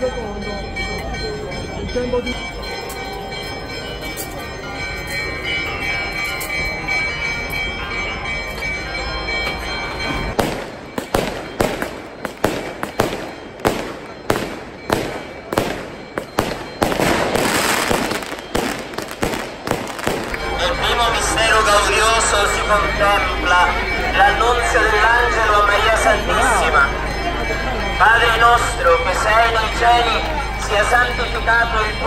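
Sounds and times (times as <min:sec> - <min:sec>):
steady ringing: 0:00.0 - 0:32.0
firecrackers banging: 0:10.3 - 0:21.4
firecrackers crackling: 0:10.4 - 0:20.8.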